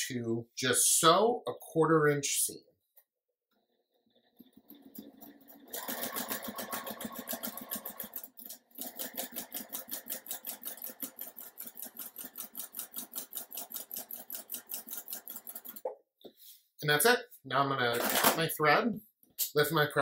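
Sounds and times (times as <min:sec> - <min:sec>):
sewing machine stitching: 0:03.5 - 0:15.9.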